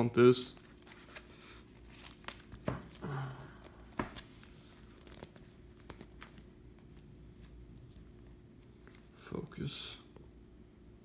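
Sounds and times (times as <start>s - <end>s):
plastic pages rustling and crinkling: 0.5s - 3.0s, 3.6s - 9.1s.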